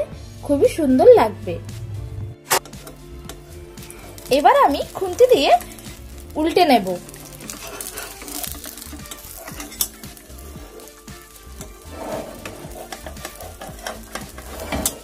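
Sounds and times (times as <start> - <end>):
omelette sizzling in oil: 2.7 - 15.0
metal spatula scraping pan: 7.1 - 15.0.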